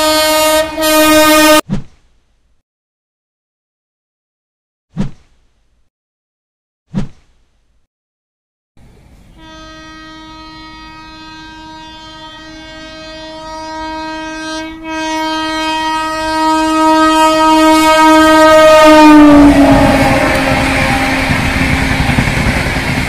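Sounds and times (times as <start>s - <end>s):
locomotive air horn blast: 0.0s - 1.6s, 9.4s - 22.8s
rushing rattle of passing train: 17.9s - 23.0s.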